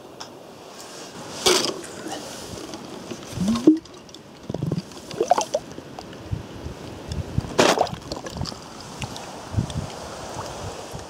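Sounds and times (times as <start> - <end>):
water gurgling and sloshing: 1.2 - 6.1, 7.5 - 11.0
mug splashing into stream: 3.4 - 4.0.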